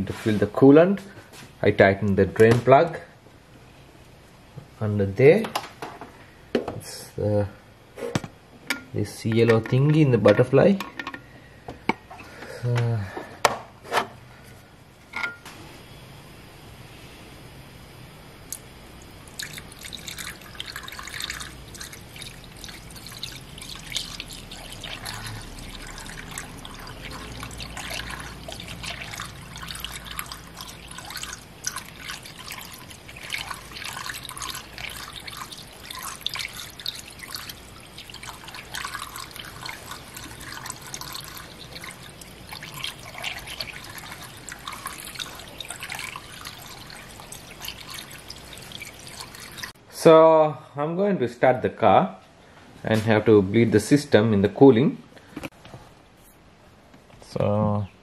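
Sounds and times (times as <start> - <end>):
coolant trickling into radiator: 18.5 - 49.8.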